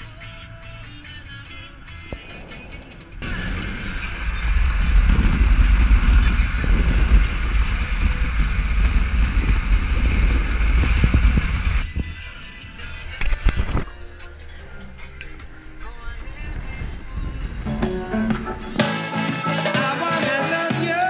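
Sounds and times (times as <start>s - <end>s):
road and wind hiss: 2.0s - 12.4s
car cabin low rumble: 3.2s - 12.0s.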